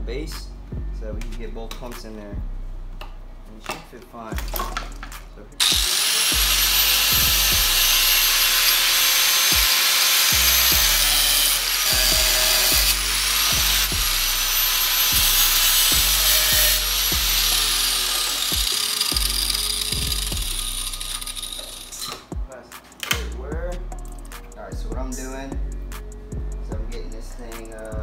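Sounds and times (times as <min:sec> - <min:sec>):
music beat: 0:00.0 - 0:28.0
high-speed power tool whining: 0:05.6 - 0:22.1.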